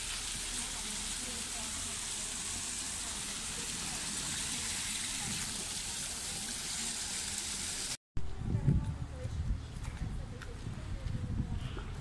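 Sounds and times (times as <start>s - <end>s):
fountain water splashing: 0.0s - 8.0s.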